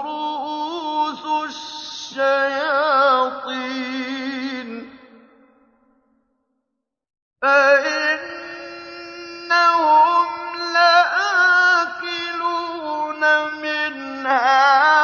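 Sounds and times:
man chanting melodically: 0:07.4 - 0:15.0.

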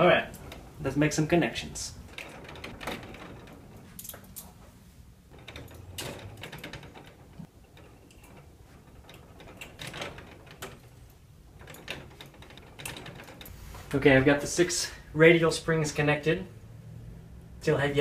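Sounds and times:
wooden frame rattling: 0:00.0 - 0:13.5
metal clicks and clinks: 0:02.1 - 0:04.6.

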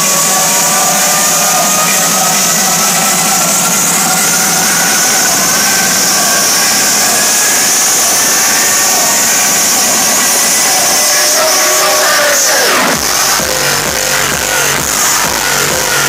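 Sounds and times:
electronic dance music riser: 0:00.0 - 0:16.0.

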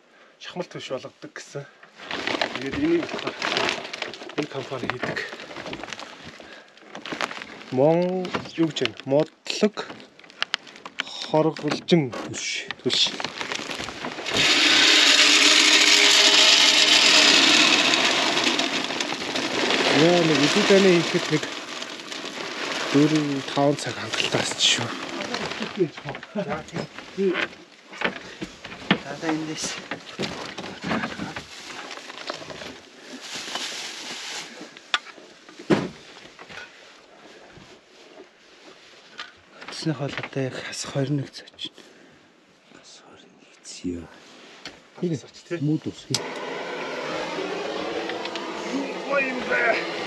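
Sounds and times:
rummaging through cloths and bags: 0:01.9 - 0:40.4
pellets rattling into metal hopper: 0:02.0 - 0:05.9, 0:12.9 - 0:26.9
sack rustling: 0:02.0 - 0:08.8, 0:12.8 - 0:27.4, 0:28.8 - 0:34.8.

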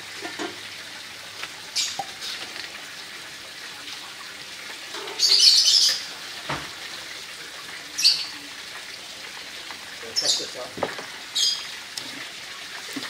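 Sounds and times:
broth boiling and bubbling: 0:00.0 - 0:13.0.

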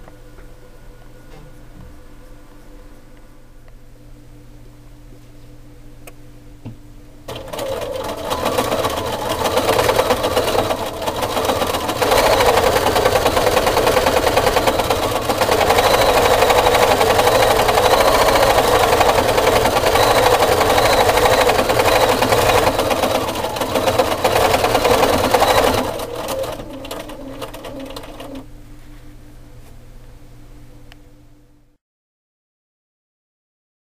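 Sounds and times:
sewing machine stitching: 0:07.3 - 0:28.4.

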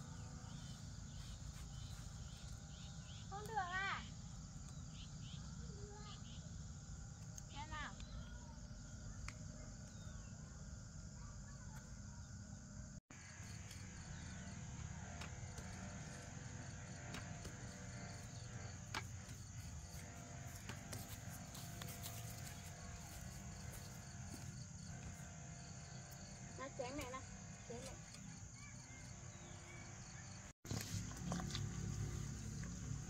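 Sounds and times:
high insect chirring: 0:00.0 - 0:10.8, 0:15.5 - 0:30.4.

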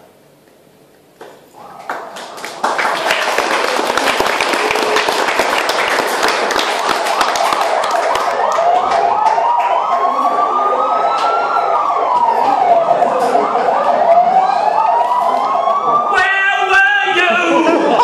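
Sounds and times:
emergency vehicle siren: 0:01.6 - 0:05.3, 0:06.3 - 0:18.0
loud voice: 0:16.1 - 0:18.0.

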